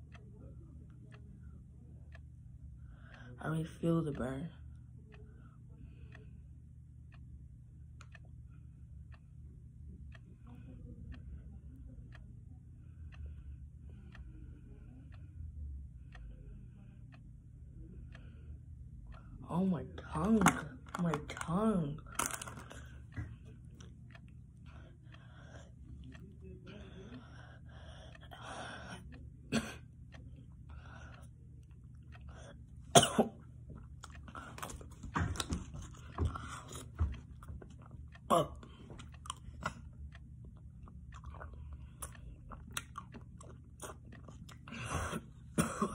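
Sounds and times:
clock ticking: 0:07.9 - 0:09.3, 0:10.0 - 0:44.8
boy coughing: 0:29.5 - 0:29.9, 0:32.9 - 0:33.4, 0:38.3 - 0:38.6, 0:44.7 - 0:45.9.

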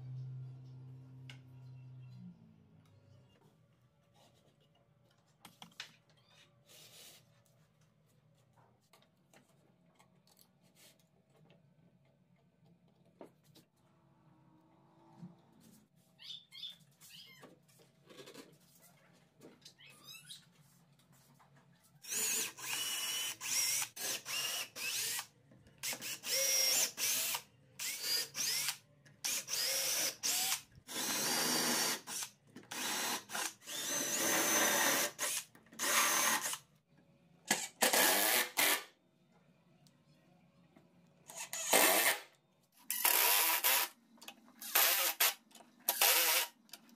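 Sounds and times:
electric drill boring: 0:22.1 - 0:36.6, 0:37.8 - 0:38.8, 0:42.9 - 0:43.9, 0:44.6 - 0:46.6.

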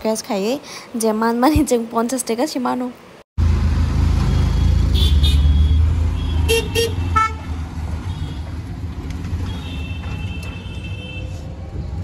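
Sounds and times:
auto-rickshaw engine running: 0:03.4 - 0:12.0
vehicle horns tooting: 0:04.2 - 0:08.6, 0:09.4 - 0:11.4.

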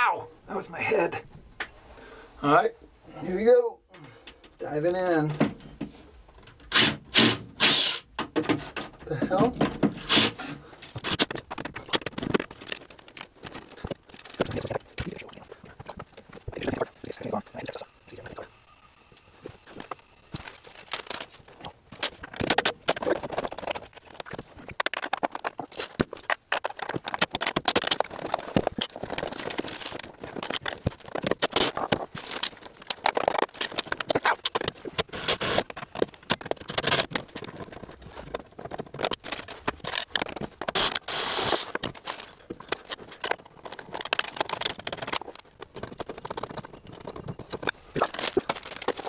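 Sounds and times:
plastic bag rustling: 0:19.4 - 0:35.0.

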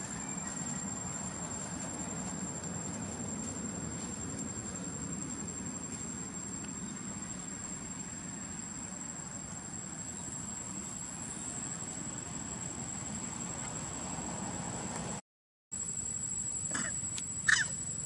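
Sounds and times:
insects droning: 0:00.0 - 0:15.2, 0:15.8 - 0:18.0.

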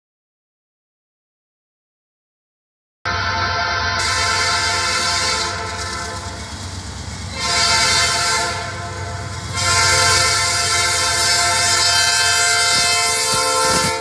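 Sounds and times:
locomotive air horn blasts: 0:03.1 - 0:06.3, 0:07.3 - 0:14.0
train rumble: 0:03.1 - 0:14.0.

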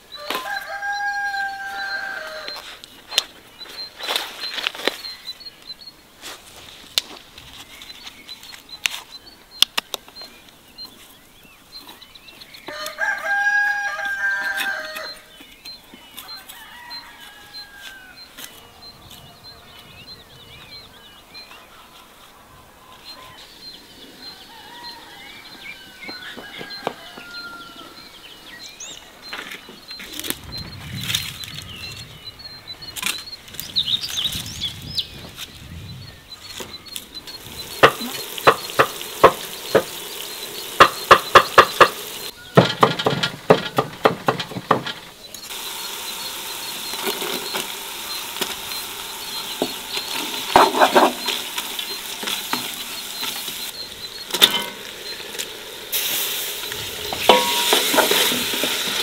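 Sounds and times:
knocks and rustles of garden work: 0:00.0 - 0:20.8, 0:21.4 - 0:59.0
small birds chirping: 0:00.0 - 0:42.8, 0:43.8 - 0:59.0
rooster crowing: 0:00.1 - 0:02.8, 0:12.7 - 0:15.3, 0:16.2 - 0:19.7, 0:24.2 - 0:28.2.

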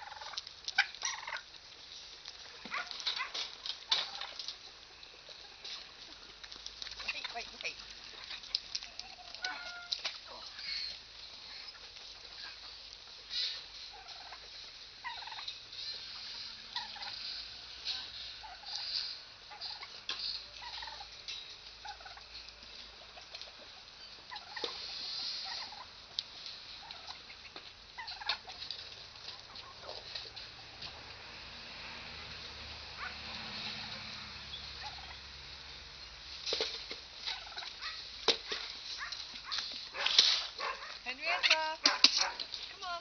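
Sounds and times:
turkeys gobbling: 0:00.0 - 0:31.0, 0:32.9 - 0:43.0.

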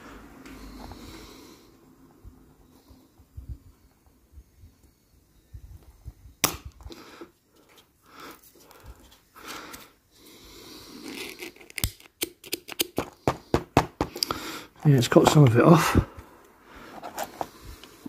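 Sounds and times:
handling noises: 0:12.7 - 0:16.0, 0:16.8 - 0:18.0.

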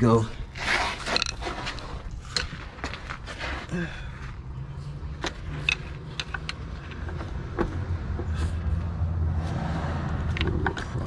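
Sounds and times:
metal clicks and scrapes: 0:00.5 - 0:03.6, 0:05.2 - 0:07.4.

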